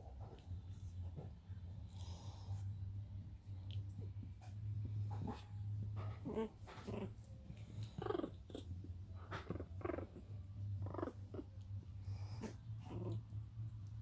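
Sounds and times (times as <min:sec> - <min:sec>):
low hum: 0:00.0 - 0:14.0
puppies growling and yipping: 0:04.9 - 0:14.0.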